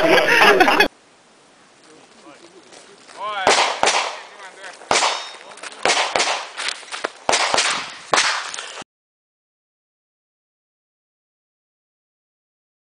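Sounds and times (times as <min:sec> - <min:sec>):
handgun shots: 0:03.5 - 0:04.2, 0:04.9 - 0:06.6, 0:07.3 - 0:08.6.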